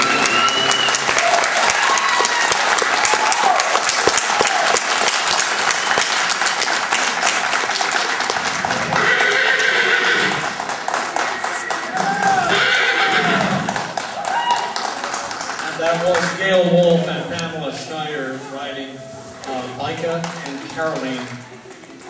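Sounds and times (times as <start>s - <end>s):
audience applauding: 0.0s - 17.5s, 19.4s - 22.0s
voices: 15.6s - 22.0s.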